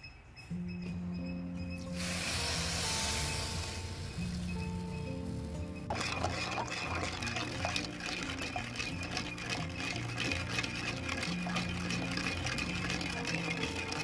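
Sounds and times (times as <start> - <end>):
background music: 0.0 - 14.0
liquid swishing and sloshing: 5.8 - 14.0.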